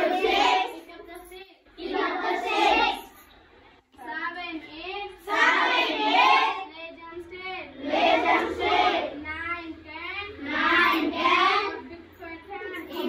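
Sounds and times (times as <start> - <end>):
children singing: 0.0 - 0.8, 1.8 - 3.1, 5.3 - 6.6, 7.8 - 9.2.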